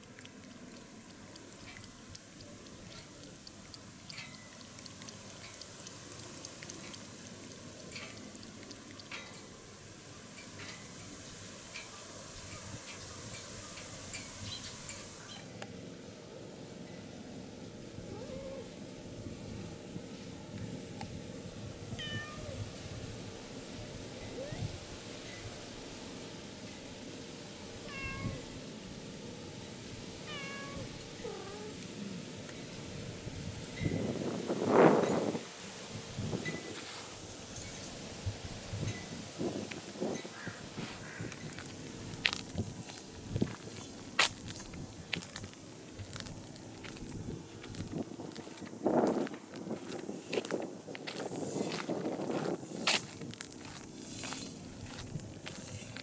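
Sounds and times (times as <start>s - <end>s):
cat lapping water: 0.0s - 10.6s
cat meowing: 18.1s - 18.7s, 22.0s - 22.6s, 27.9s - 28.4s, 30.3s - 31.8s.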